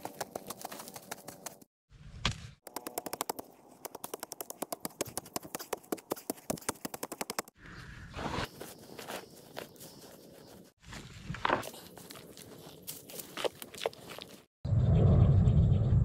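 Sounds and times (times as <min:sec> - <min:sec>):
digging stick knocking stony soil: 0:02.2 - 0:07.5
soil scraped by hand: 0:03.1 - 0:14.5.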